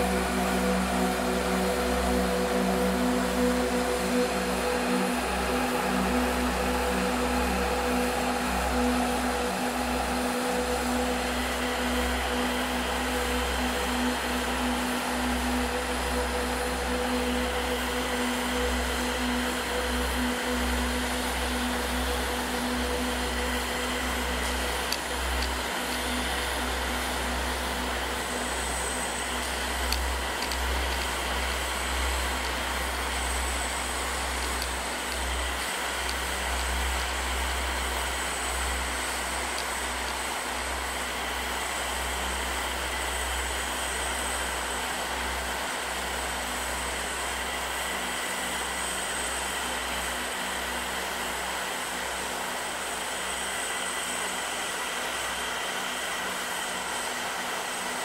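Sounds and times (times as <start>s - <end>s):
drone motors whining: 20.1s - 41.4s.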